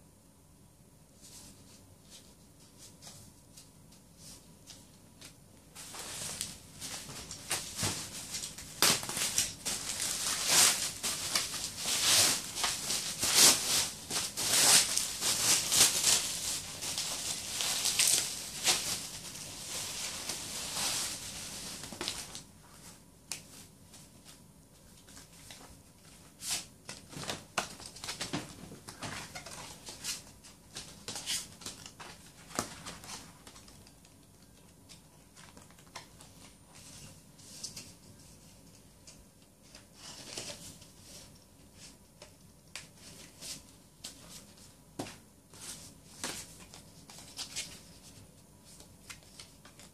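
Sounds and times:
bubble wrap crinkling: 5.7s - 37.1s
cd cases and paper handled: 25.0s - 36.9s.

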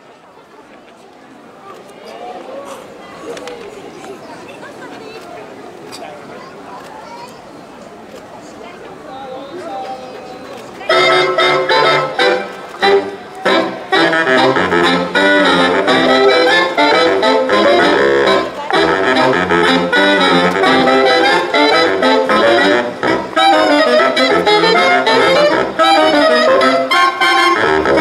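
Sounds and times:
dance music with saxophone and brass: 10.9s - 28.0s.

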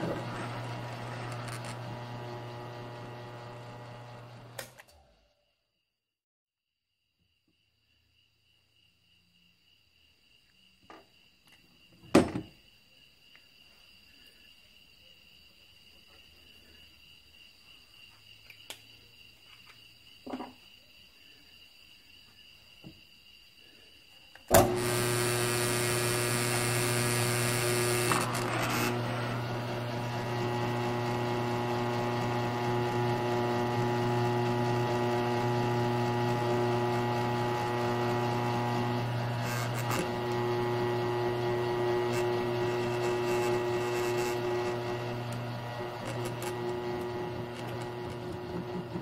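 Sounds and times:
drill bit boring steel: 0.0s - 4.8s, 24.5s - 49.0s
drill press humming: 0.0s - 5.2s, 24.5s - 49.0s.

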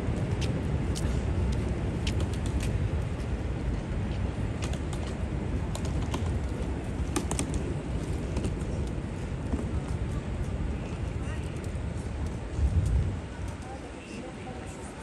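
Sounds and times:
traffic and crowd rumble: 0.0s - 15.0s
footsteps on pavement: 0.1s - 5.2s.

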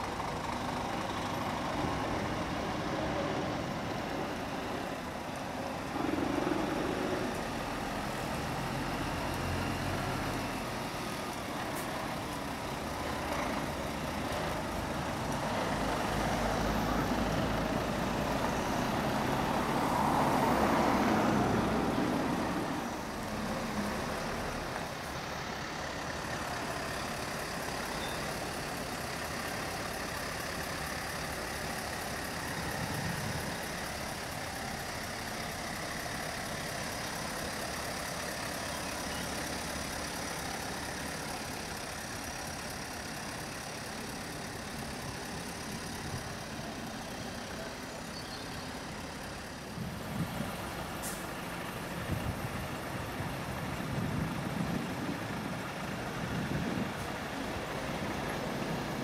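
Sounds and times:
lorry engines running: 0.0s - 59.0s
traffic noise: 0.0s - 59.0s.

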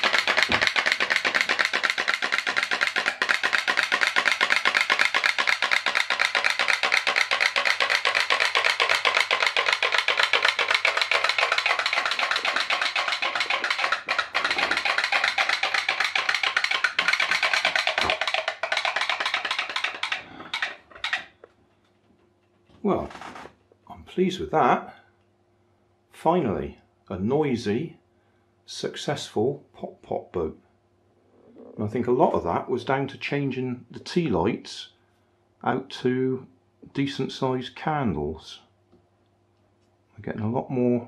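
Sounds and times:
pop-pop boat boiler popping: 0.0s - 21.9s.

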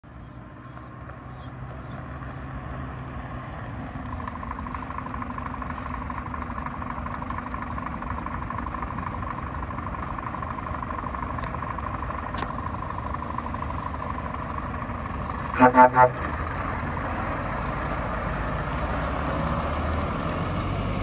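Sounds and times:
diesel truck engine running: 0.0s - 21.0s.

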